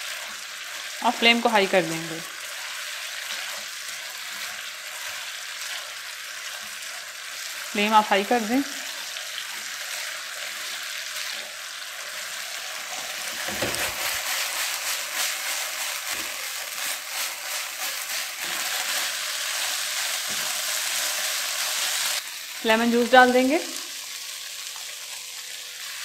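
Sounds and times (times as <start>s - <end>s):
chicken sizzling in a wok: 0.0s - 26.0s
spatula stirring and scraping: 2.4s - 7.4s, 8.9s - 22.2s.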